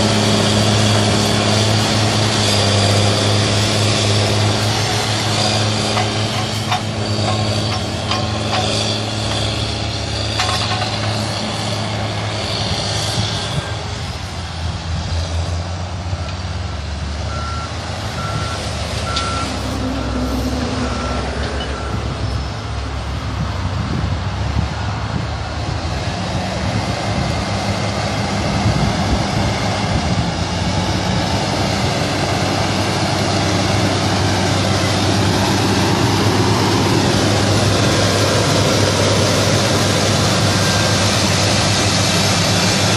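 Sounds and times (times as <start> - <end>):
diesel engines droning: 0.0 - 42.9
reversing alarm beeping: 17.3 - 20.2, 20.8 - 22.6.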